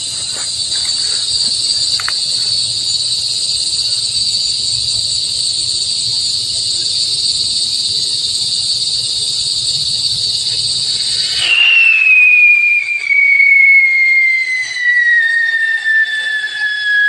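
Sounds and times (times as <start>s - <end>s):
firework hissing: 0.0s - 17.0s
firework whistle falling in pitch: 10.8s - 17.0s.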